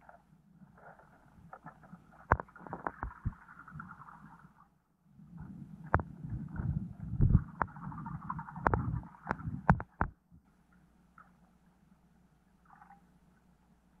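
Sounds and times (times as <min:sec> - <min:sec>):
underwater rumbling: 0:00.0 - 0:10.2
underwater clicks and knocks: 0:01.5 - 0:03.8, 0:05.4 - 0:10.2.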